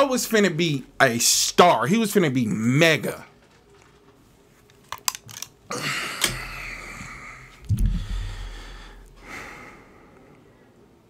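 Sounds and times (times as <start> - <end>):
man breathing out heavily: 5.7 - 10.2
low thump: 7.7 - 8.7.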